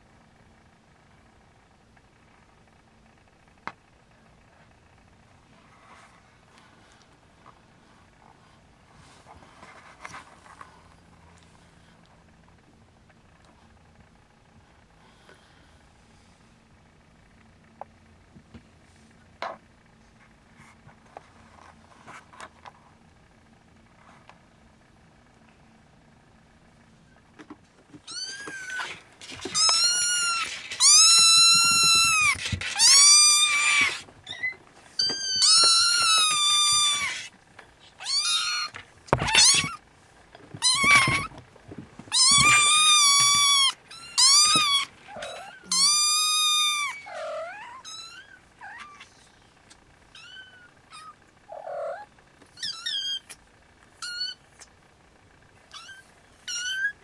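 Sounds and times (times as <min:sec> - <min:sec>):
kitten mewing: 0:42.1 - 0:49.1.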